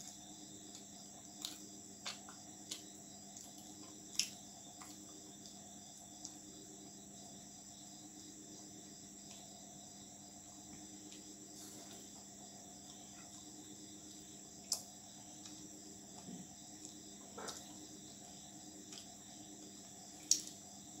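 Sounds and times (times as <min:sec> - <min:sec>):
chewing clicks: 0:00.0 - 0:05.6, 0:14.1 - 0:15.6, 0:20.2 - 0:20.6
faint low hum: 0:00.0 - 0:21.0
insect chirring: 0:00.0 - 0:21.0.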